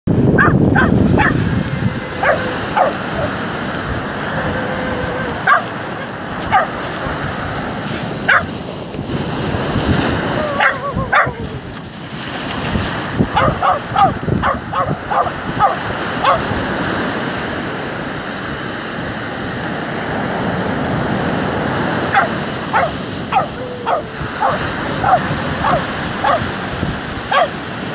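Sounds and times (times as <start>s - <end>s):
dog barking: 0.4s - 3.4s, 4.4s - 7.4s, 8.2s - 8.6s, 10.4s - 11.4s, 13.3s - 16.5s, 22.1s - 26.5s, 27.3s - 27.6s.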